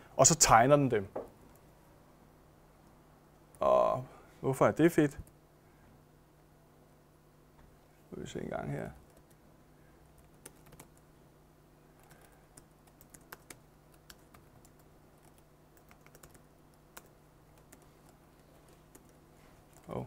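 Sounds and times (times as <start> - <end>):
low steady hum: 0.0 - 20.0
computer keyboard keystrokes: 10.2 - 11.0, 12.0 - 18.2.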